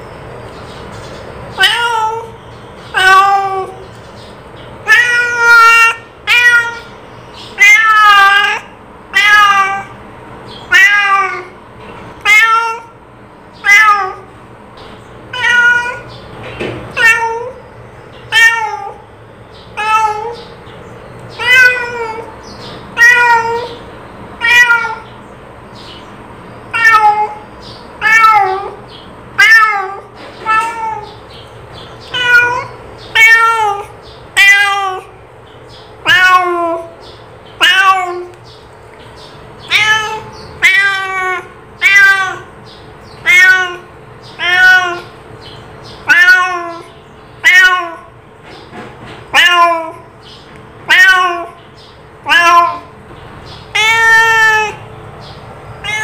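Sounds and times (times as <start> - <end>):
cat meowing: 1.6 - 3.8, 4.8 - 10.0, 10.6 - 11.6, 12.2 - 13.0, 13.6 - 14.3, 15.3 - 16.2, 16.9 - 17.6, 18.3 - 19.1, 19.8 - 20.6, 21.3 - 25.2, 26.7 - 31.3, 32.0 - 35.2, 36.0 - 37.0, 37.6 - 38.4, 39.6 - 45.2, 45.9 - 48.2, 49.2 - 50.2, 50.8 - 51.6, 52.2 - 54.9, 55.8 - 56.0.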